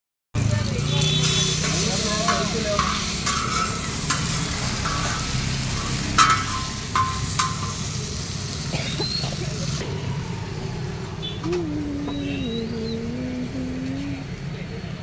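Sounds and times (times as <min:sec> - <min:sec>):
fish sizzling on a hot pan: 0:00.4 - 0:09.8.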